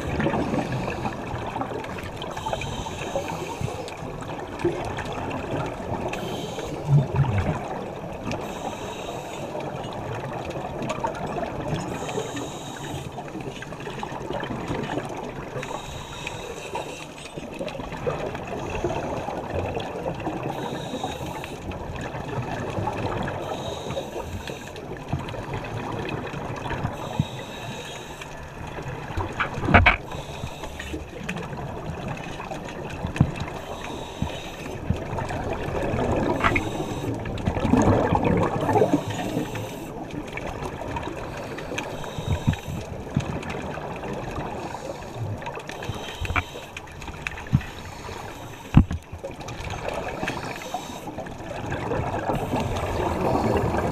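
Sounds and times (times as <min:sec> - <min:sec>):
scuba regulator breathing: 0:00.0 - 0:01.6, 0:02.3 - 0:04.1, 0:06.0 - 0:07.2, 0:08.3 - 0:09.8, 0:11.8 - 0:13.4, 0:15.6 - 0:17.6, 0:20.4 - 0:21.8, 0:23.3 - 0:24.8, 0:26.8 - 0:28.6, 0:29.2 - 0:31.4, 0:33.4 - 0:35.2, 0:36.1 - 0:37.4, 0:38.4 - 0:40.0, 0:41.0 - 0:43.1, 0:44.4 - 0:49.0, 0:49.7 - 0:53.9
exhaled bubbles rushing: 0:06.8 - 0:08.2, 0:34.8 - 0:36.6, 0:37.2 - 0:41.5
faint clicks: 0:23.1 - 0:38.0, 0:38.6 - 0:51.5.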